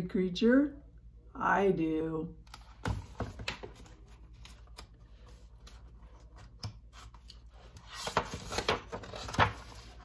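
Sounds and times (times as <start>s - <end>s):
book pages turning: 2.5s - 10.0s.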